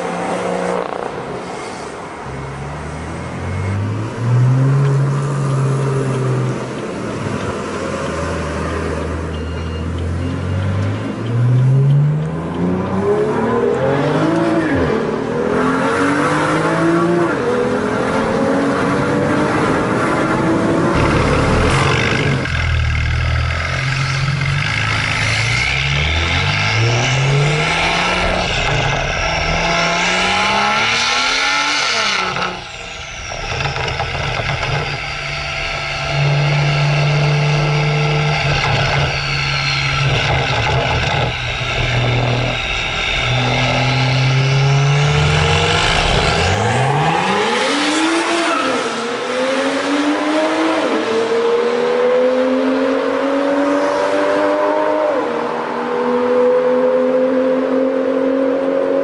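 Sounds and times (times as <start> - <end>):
car engine revving: 10.1 - 59.0.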